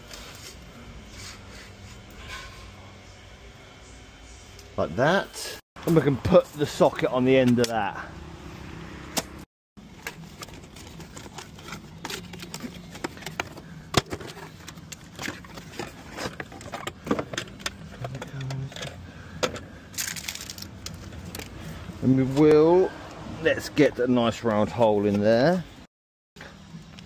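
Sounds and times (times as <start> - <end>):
cardboard rustling: 9.9 - 16.8.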